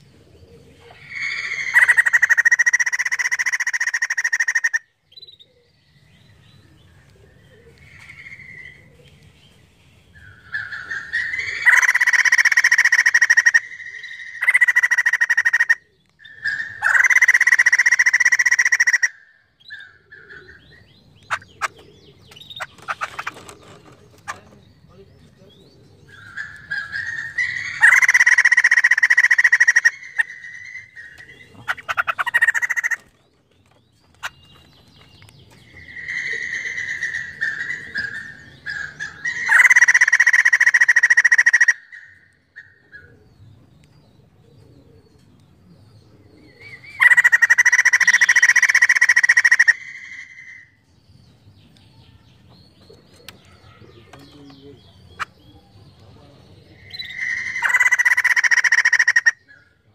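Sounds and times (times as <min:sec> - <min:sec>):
bird calling in harsh bursts: 0:01.0 - 0:05.0, 0:10.4 - 0:20.6, 0:21.3 - 0:21.8, 0:26.2 - 0:33.1, 0:35.7 - 0:42.8, 0:46.9 - 0:50.8, 0:56.8 - 0:59.7.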